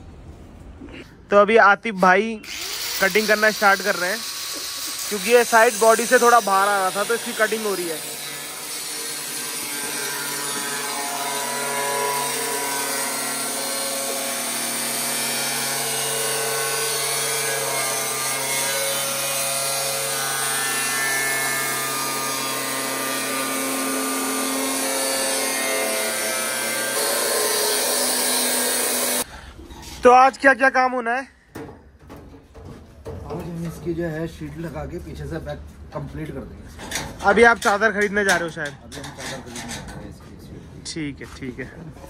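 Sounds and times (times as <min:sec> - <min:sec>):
angle grinder cutting steel: 0:02.4 - 0:29.3.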